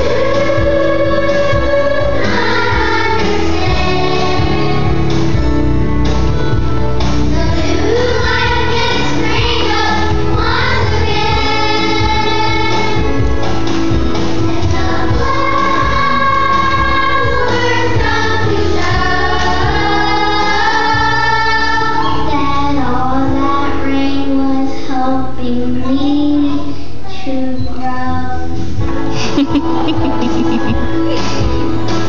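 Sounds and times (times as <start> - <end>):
children singing: 0.0 - 5.3, 7.3 - 13.4, 14.2 - 25.0
instrumental accompaniment: 0.0 - 22.6, 28.6 - 32.0.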